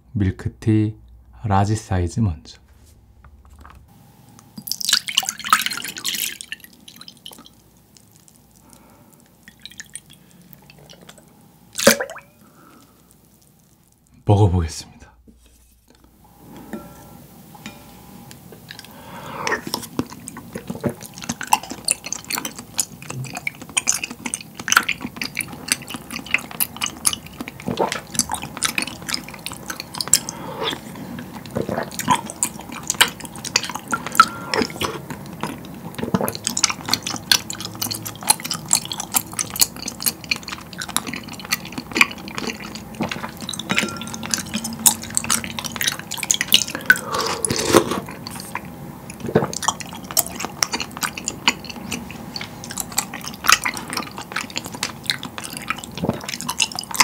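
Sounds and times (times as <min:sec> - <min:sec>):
wet slurps and chewing: 0:04.6 - 0:11.2, 0:18.6 - 0:57.0.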